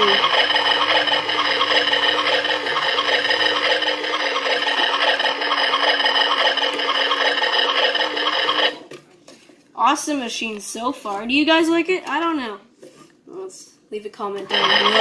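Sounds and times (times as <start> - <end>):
toy motor humming and rattling: 0.0 - 8.8, 14.5 - 15.0.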